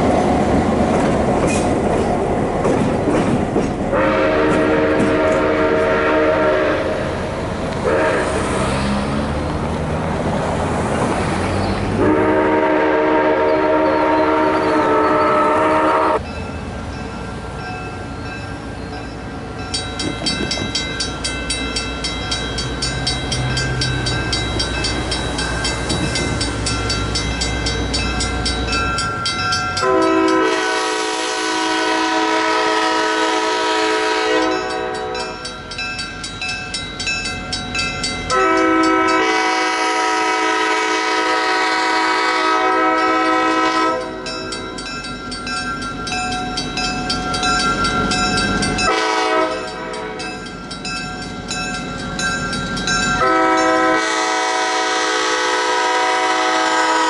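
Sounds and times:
train rumble: 0.0 - 57.0
steam whistle blasts: 3.9 - 7.1, 7.8 - 8.4, 12.0 - 16.2, 29.8 - 35.3, 38.3 - 44.2, 48.9 - 49.7, 53.2 - 57.0
crossing bells ringing: 11.2 - 57.0.

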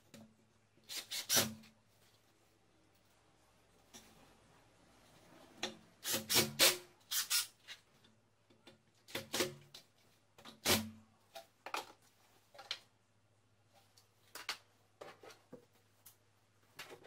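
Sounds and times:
drill driving screws into wood: 0.9 - 1.6, 6.0 - 7.5.

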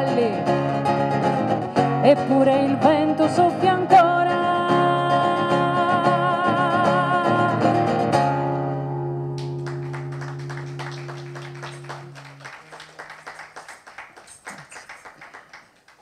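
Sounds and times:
woman singing with vibrato: 2.0 - 7.7
faint applause: 9.4 - 16.0.

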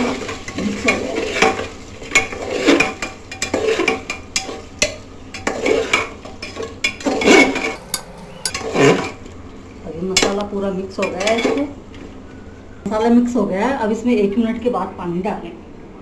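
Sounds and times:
spoon scraping metal pot: 7.8 - 8.7.

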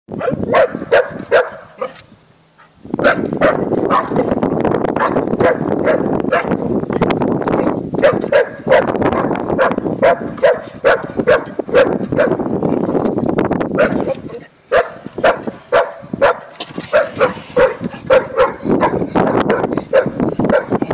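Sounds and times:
dog barking: 0.2 - 2.0, 3.0 - 4.4, 5.0 - 6.6, 8.0 - 12.4, 13.8 - 20.8.

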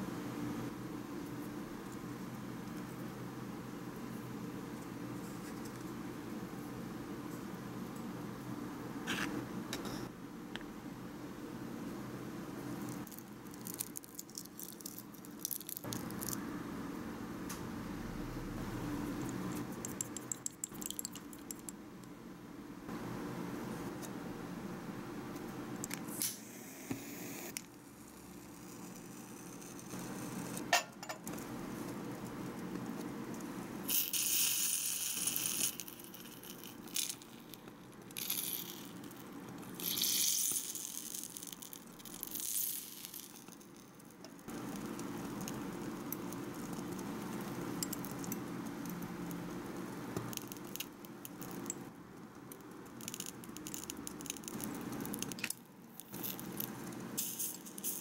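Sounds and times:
low steady hum: 0.0 - 33.9.

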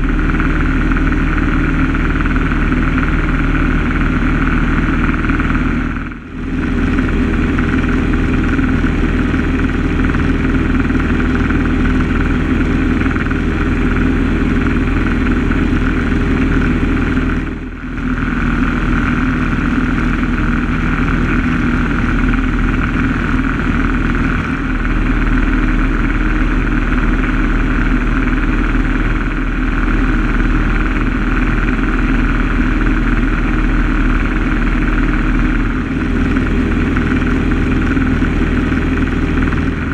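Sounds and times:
propeller aircraft engine droning: 0.0 - 39.9.

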